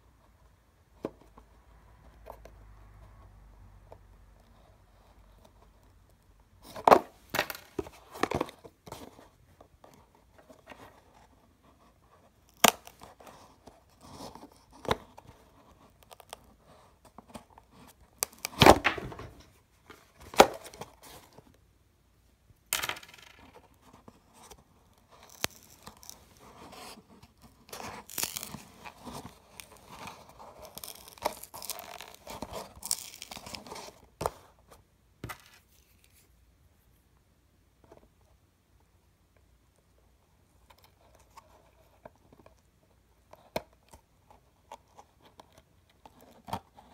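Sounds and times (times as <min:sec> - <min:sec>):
cardboard tearing: 0:27.7 - 0:34.0.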